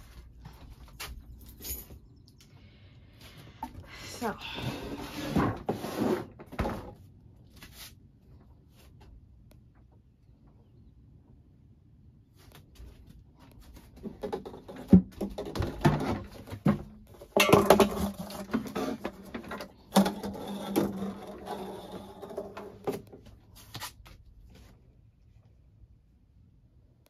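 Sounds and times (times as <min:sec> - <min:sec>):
low steady hum: 0:06.5 - 0:27.0.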